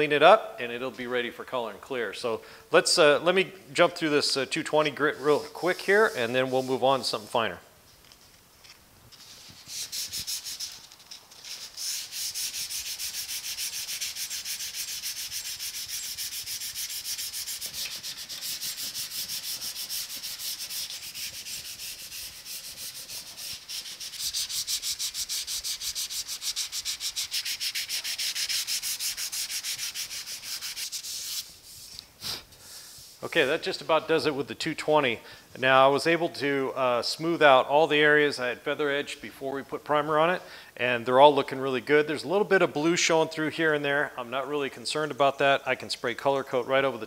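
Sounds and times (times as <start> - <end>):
hand sanding metal: 4.8 - 7.0, 9.2 - 34.1.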